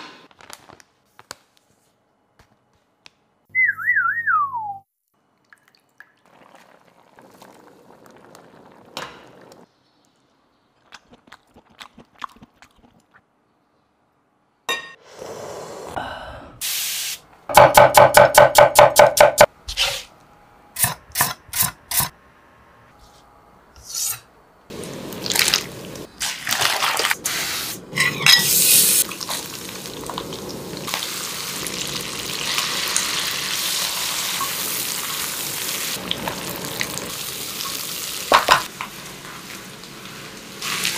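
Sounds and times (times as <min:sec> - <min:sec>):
potatoes sizzling in wok: 0:27.2 - 0:40.9.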